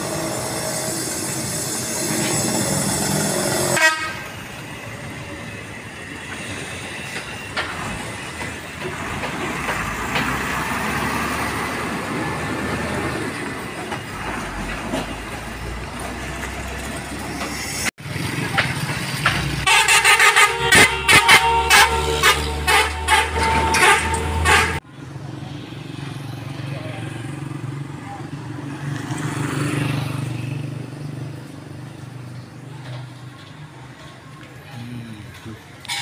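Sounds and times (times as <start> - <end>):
diesel trucks running in traffic: 0.0 - 36.0
truck horn: 3.6 - 4.4, 19.6 - 24.8.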